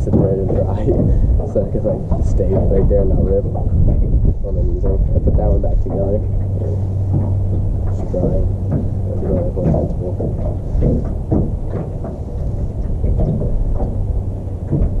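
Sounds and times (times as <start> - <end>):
steady low hum: 0.0 - 15.0
wind rumbling on microphone: 0.0 - 15.0.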